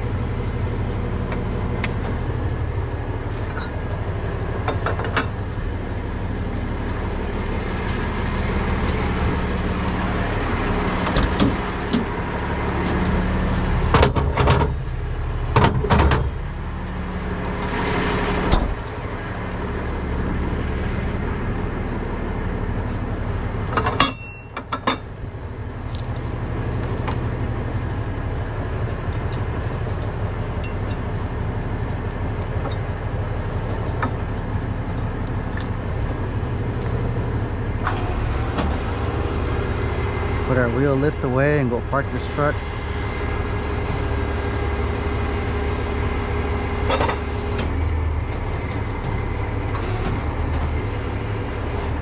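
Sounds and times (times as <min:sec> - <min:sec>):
truck engine running: 0:00.0 - 0:52.0
metal chains clanking: 0:29.2 - 0:31.3.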